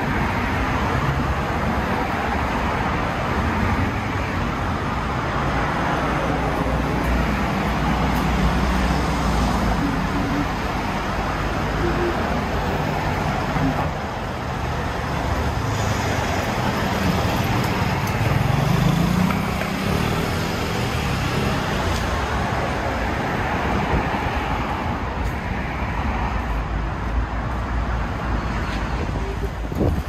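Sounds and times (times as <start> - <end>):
vehicle engine hum: 0.0 - 23.9
road noise: 0.0 - 30.0.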